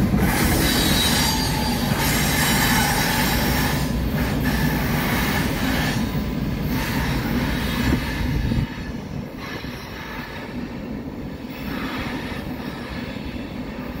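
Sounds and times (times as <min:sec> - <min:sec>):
freight train rumbling over bridge: 0:00.0 - 0:14.0.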